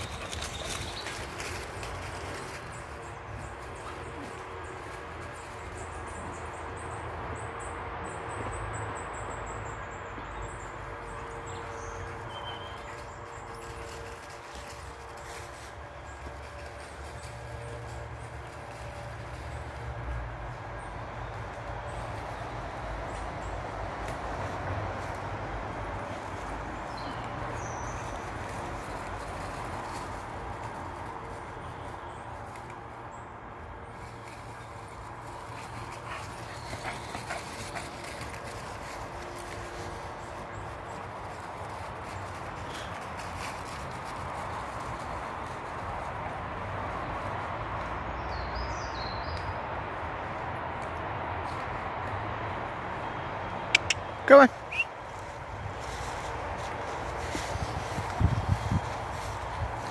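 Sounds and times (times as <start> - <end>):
woodland ambience: 0.0 - 59.9
footsteps crunching dry leaves: 55.0 - 59.9.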